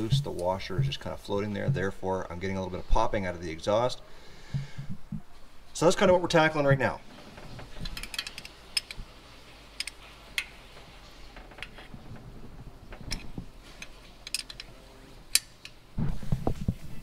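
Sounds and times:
wrench clicking on bolt: 7.9s - 9.0s, 9.8s - 10.5s, 13.8s - 14.7s.

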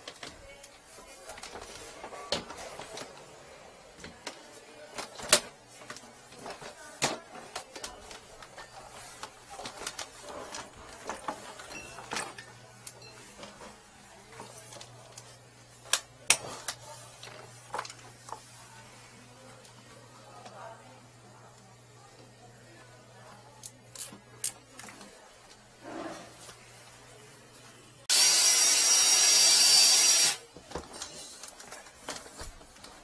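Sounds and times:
tools and cable clattering: 4.0s - 13.8s, 30.6s - 33.0s.

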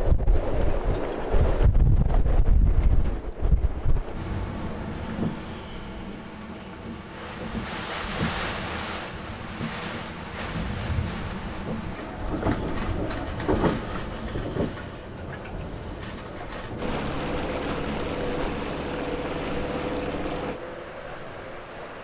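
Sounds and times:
storm wind gusting: 0.0s - 17.0s
outboard motor humming: 16.8s - 20.6s.

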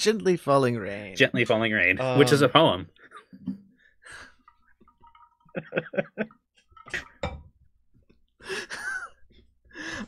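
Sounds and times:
men laughing quietly: 8.4s - 10.0s.

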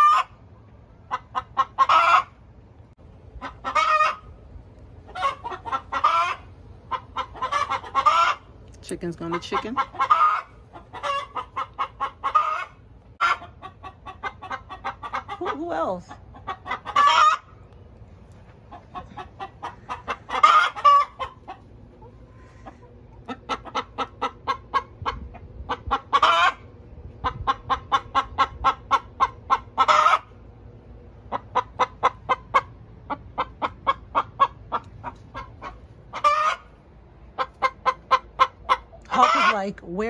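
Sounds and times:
hens cackling: 0.0s - 2.6s, 3.2s - 40.0s.

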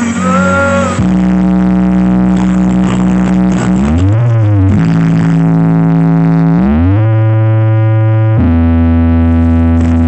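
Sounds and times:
loud synthesized tones from speakers: 0.0s - 10.0s.

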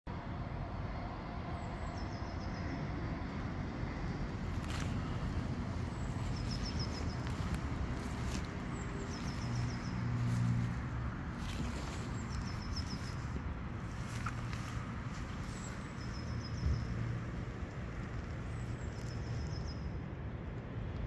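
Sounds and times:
small bird singing: 4.5s - 17.3s.

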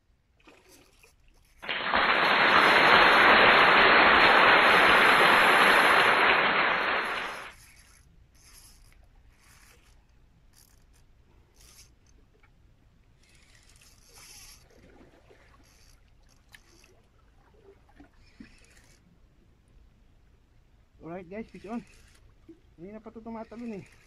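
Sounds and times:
fishing reel ticking whir: 7.2s - 12.5s, 13.1s - 17.0s, 18.1s - 19.1s, 21.0s - 24.0s
fishing reel clicks: 7.3s - 12.2s, 13.2s - 14.7s, 15.6s - 17.0s, 18.2s - 19.0s, 21.1s - 24.0s.

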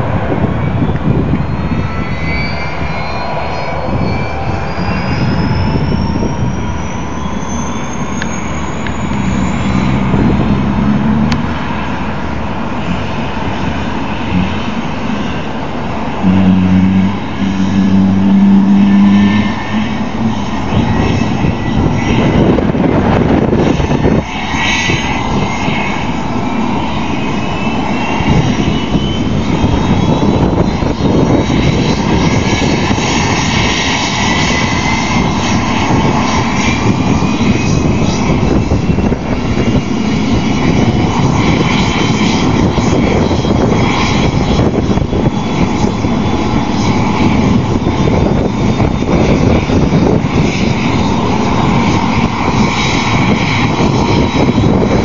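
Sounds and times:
helicopter engines roaring: 0.0s - 55.0s
rising engine whine: 0.0s - 55.0s.

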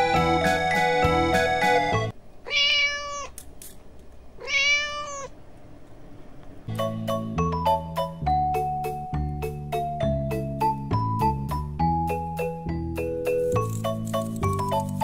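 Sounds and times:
electronic keyboard music: 0.0s - 2.1s
cat meowing: 2.4s - 3.4s, 4.4s - 5.4s.

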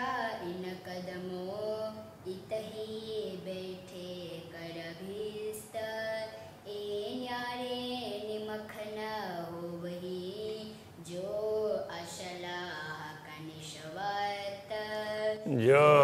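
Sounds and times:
voices singing devotional verse: 7.0s - 16.0s.

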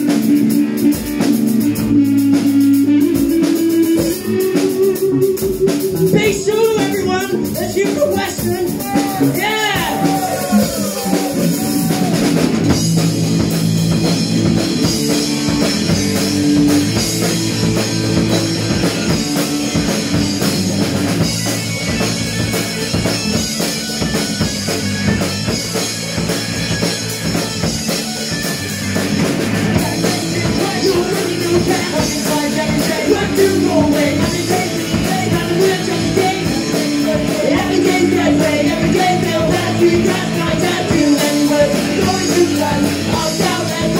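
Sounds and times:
live rock band playing: 0.0s - 43.9s
person singing: 2.9s - 12.3s, 29.7s - 43.9s.

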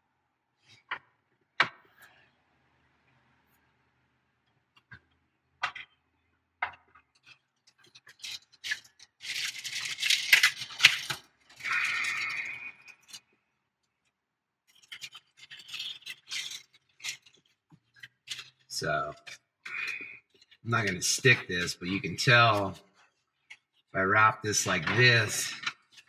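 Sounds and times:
plastic packaging crinkling: 7.2s - 13.3s, 14.7s - 22.8s.

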